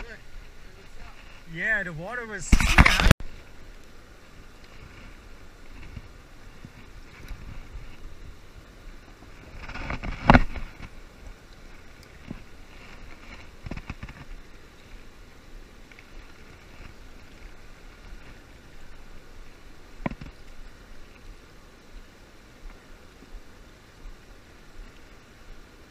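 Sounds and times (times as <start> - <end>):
wind on microphone: 4.6 - 14.6.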